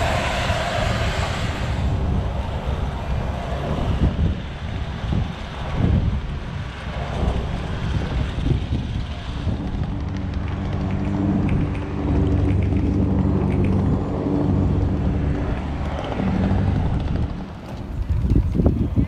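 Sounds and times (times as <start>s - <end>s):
low engine hum: 0.0s - 19.0s
wind rumbling on microphone: 0.0s - 19.0s.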